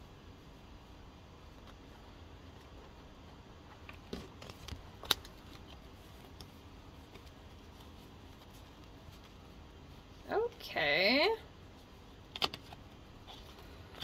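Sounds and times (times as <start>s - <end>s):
faint room hiss: 0.0s - 14.0s
cards clicking and sliding: 12.3s - 14.0s.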